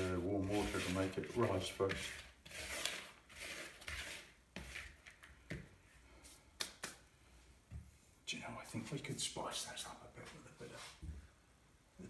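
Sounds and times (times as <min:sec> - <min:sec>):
hands rubbing crumb in bowl: 0:00.0 - 0:05.4.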